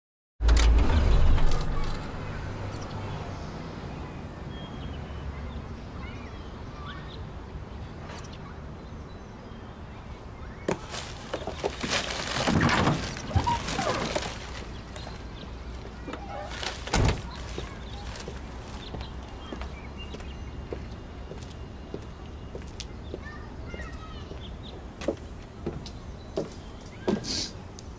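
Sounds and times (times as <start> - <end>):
car door clatter and rustling: 10.7 - 18.9
car door slamming shut: 16.8 - 17.4.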